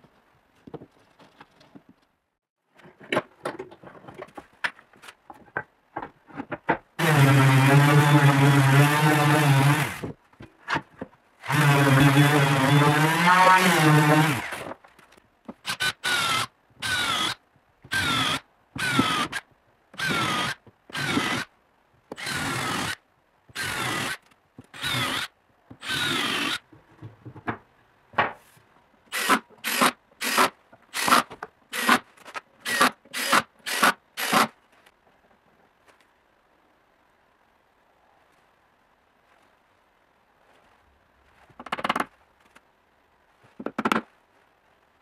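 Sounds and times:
power drill boring holes: 0:07.0 - 0:10.1, 0:11.4 - 0:14.7, 0:15.7 - 0:19.4, 0:20.0 - 0:21.5, 0:22.2 - 0:23.0, 0:23.6 - 0:24.2, 0:24.8 - 0:26.6, 0:29.1 - 0:32.0, 0:32.6 - 0:34.5.

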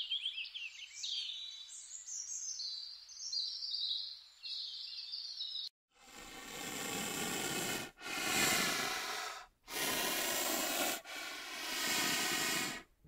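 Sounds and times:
animal breathing heavily: 0:06.0 - 0:13.0.

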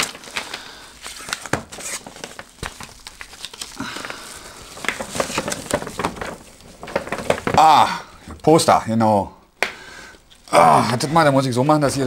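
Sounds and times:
paper rustling and crinkling: 0:00.0 - 0:07.8.

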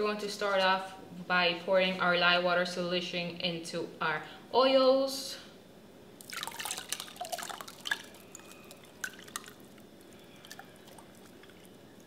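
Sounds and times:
dripping: 0:06.2 - 0:12.0
liquid pouring and splashing: 0:06.2 - 0:12.0.

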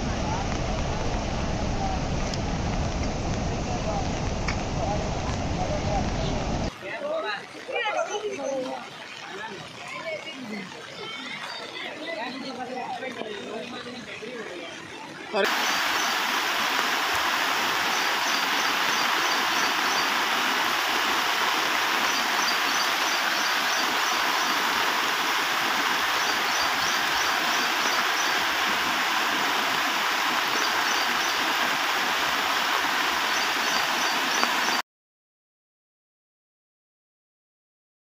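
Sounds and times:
floodwater rushing over road: 0:00.0 - 0:34.8
high chirping: 0:22.0 - 0:24.8, 0:26.0 - 0:28.6.

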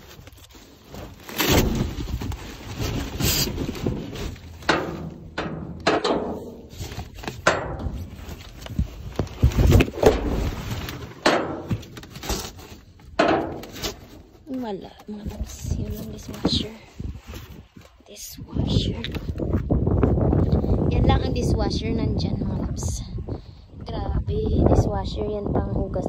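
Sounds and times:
packaging rustling: 0:00.0 - 0:04.7, 0:08.0 - 0:16.5
scrapes: 0:00.0 - 0:19.6
boxes thumping in a dumpster: 0:01.0 - 0:08.2.

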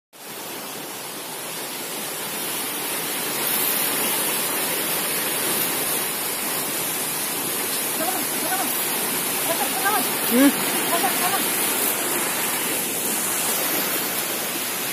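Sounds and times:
flowing water rushing: 0:00.2 - 0:14.9.

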